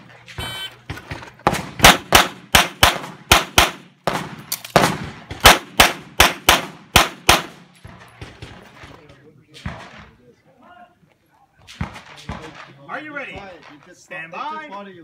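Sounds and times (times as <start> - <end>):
pistol shots: 1.4 - 7.6.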